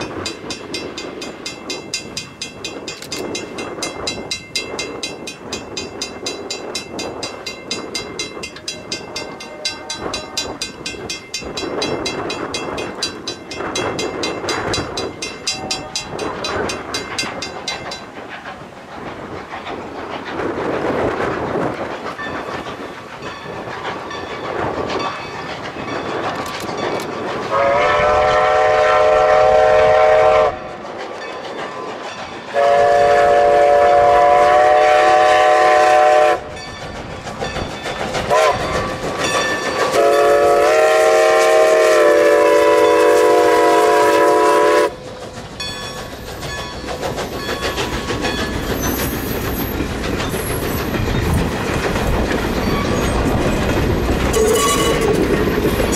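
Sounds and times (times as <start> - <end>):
passenger coaches rolling: 0.0 - 55.9
steam engine working: 0.0 - 55.9
steam locomotive chime whistle: 3.0 - 18.0, 27.5 - 31.9, 32.5 - 36.7, 38.3 - 45.0, 54.3 - 55.9.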